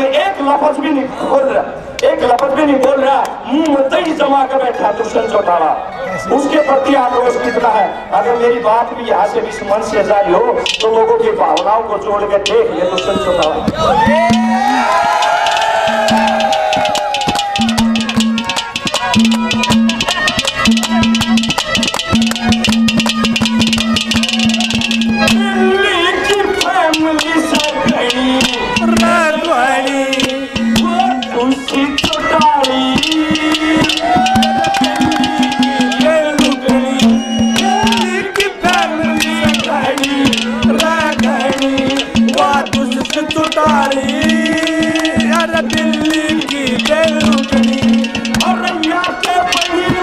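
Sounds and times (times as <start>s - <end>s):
fast drum strokes: 10.6s - 11.7s, 12.4s - 50.0s
man singing ornamented melody: 24.2s - 50.0s.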